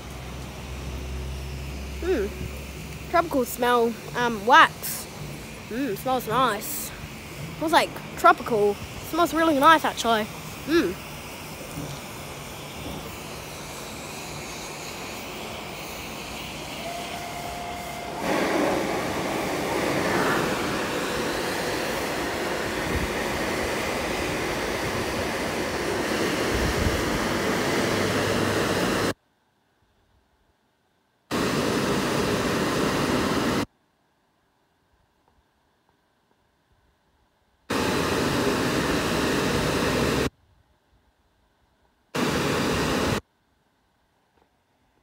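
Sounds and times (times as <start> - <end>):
car wash dryer blowers: 0.0 - 29.2, 31.3 - 33.7, 37.7 - 40.3, 42.2 - 43.2.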